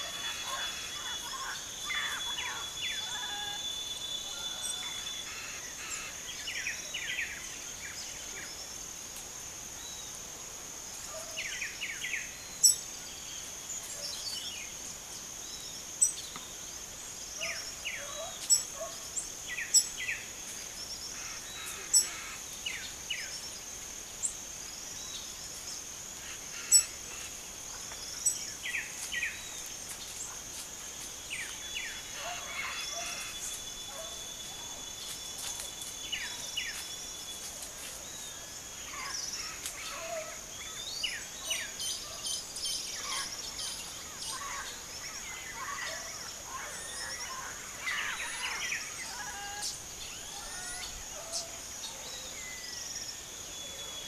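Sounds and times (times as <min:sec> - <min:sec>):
high-pitched insect drone: 0:00.0 - 0:06.4
small birds chirping: 0:11.0 - 0:54.0.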